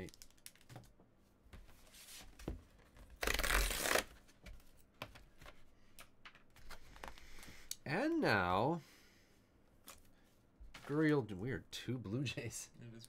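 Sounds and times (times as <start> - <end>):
paper envelope ripping: 3.2 - 4.1.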